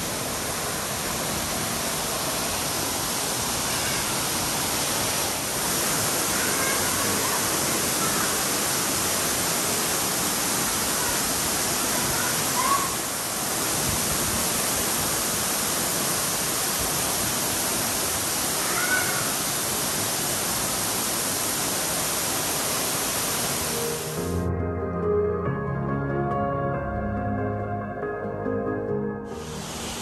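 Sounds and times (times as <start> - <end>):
waterfall rushing: 0.0 - 24.5, 29.3 - 30.0.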